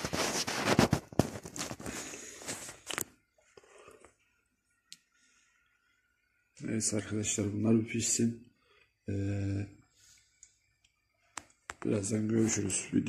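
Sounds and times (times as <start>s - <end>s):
shuffling footsteps: 0.0s - 3.0s.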